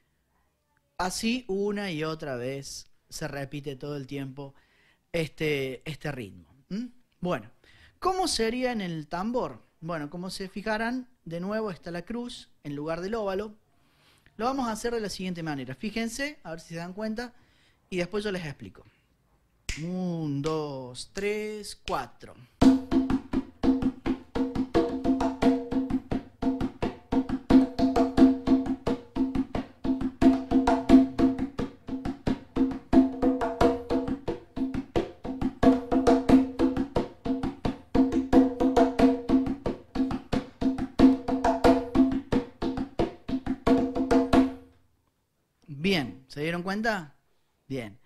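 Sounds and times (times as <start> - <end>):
conga drum played by hand: 22.6 - 44.7.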